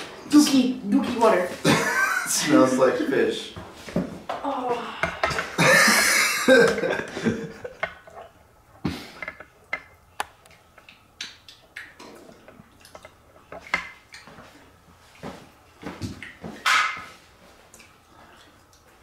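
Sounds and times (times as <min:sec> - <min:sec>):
person coughing and gagging: 0:05.3 - 0:07.7.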